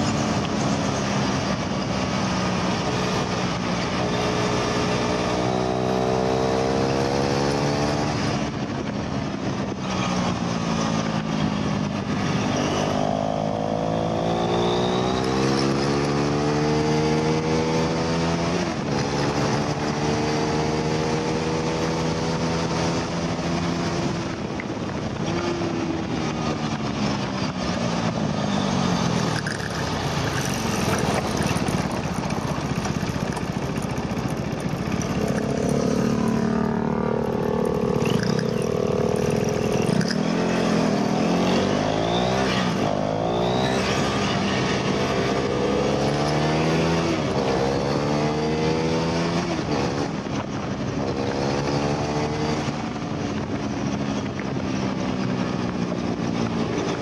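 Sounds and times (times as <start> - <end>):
motorcycle engine accelerating: 0.0 - 57.0
heavy wind rush: 21.8 - 47.7.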